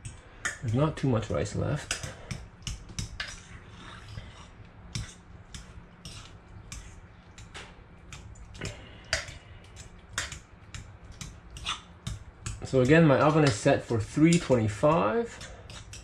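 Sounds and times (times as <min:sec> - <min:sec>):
hands mixing wet pudding: 0:00.0 - 0:16.0.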